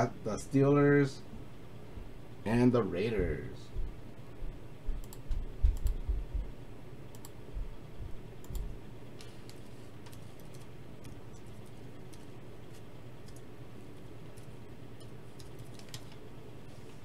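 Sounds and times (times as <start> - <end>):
computer keyboard typing: 5.0 - 6.1, 8.4 - 13.5, 14.3 - 16.2.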